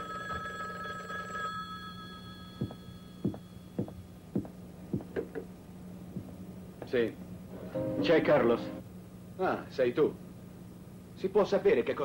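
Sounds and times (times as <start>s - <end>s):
telephone ringing: 0.0s - 3.9s
low steady hum: 0.0s - 12.0s
footsteps on hard floor: 2.6s - 5.2s, 6.2s - 6.4s.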